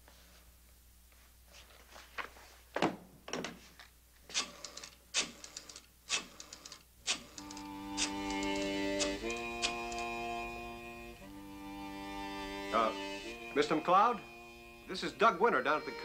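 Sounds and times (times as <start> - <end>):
rotary dial clicking and ticking: 4.4 - 10.0
string music: 7.4 - 16.0.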